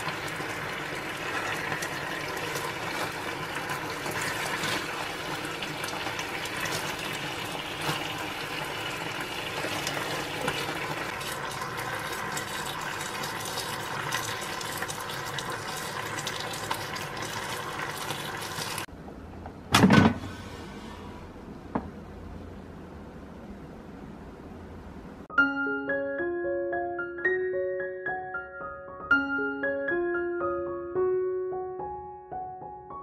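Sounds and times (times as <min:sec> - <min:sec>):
meat sizzling in a frying pan: 0:00.0 - 0:18.9.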